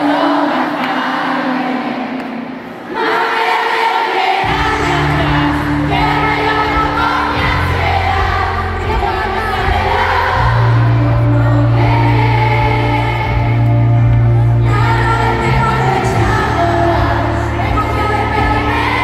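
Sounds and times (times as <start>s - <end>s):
crowd noise: 0.0s - 19.0s
live pop band: 3.3s - 19.0s
woman singing into microphone: 4.3s - 19.0s.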